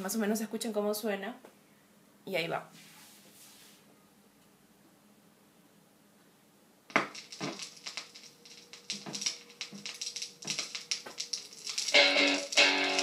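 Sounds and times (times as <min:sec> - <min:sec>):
vinyl crackle and pops: 0:06.9 - 0:13.0.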